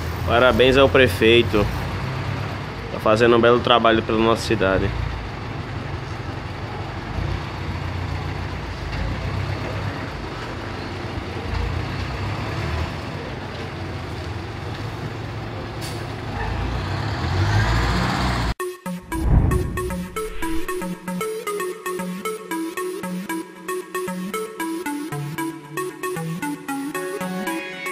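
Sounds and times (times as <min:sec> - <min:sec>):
diesel truck engine running: 0:00.0 - 0:18.6
electronic music: 0:18.6 - 0:27.9.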